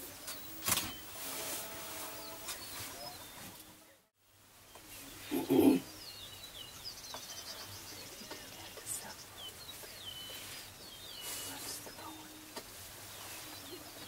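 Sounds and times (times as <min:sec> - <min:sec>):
small birds chirping: 0:01.9 - 0:14.0
faint low hoots of prairie chickens: 0:05.1 - 0:06.3.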